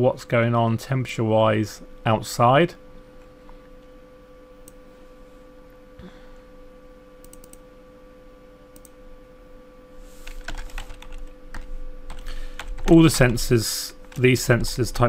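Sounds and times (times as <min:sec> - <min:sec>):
steady low hum: 0:00.0 - 0:15.0
computer keyboard typing: 0:07.2 - 0:07.6, 0:10.2 - 0:13.4.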